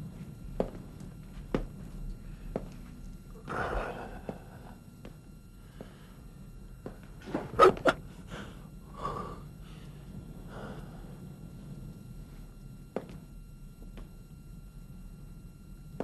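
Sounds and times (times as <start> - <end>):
soft breathing: 2.2 - 6.9, 8.1 - 12.6
person gasping: 3.5 - 4.8, 8.3 - 9.8.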